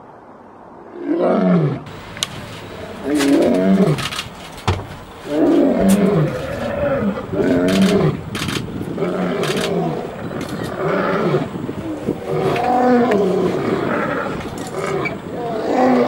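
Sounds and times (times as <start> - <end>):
lion roaring: 2.6 - 4.3, 5.2 - 16.0.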